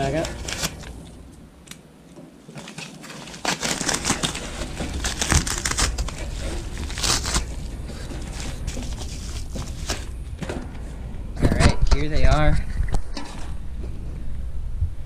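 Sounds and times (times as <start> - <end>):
padded mailer bag crinkling: 0.0 - 1.2, 2.4 - 10.2.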